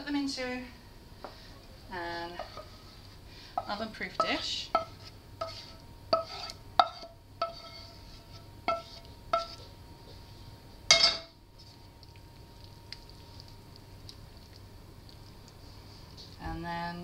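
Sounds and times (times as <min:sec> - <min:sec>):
wooden spoon scraping metal pan: 0:02.2 - 0:03.0, 0:03.6 - 0:09.7.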